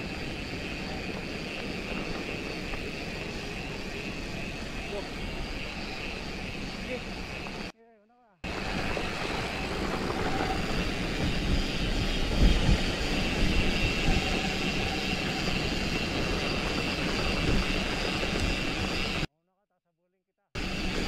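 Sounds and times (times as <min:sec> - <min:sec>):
bike rattling over rough ground: 0:00.0 - 0:07.7, 0:08.5 - 0:19.2
wind rumble on microphone: 0:00.0 - 0:07.7, 0:08.5 - 0:19.3
tyre roar on dirt: 0:08.5 - 0:19.2.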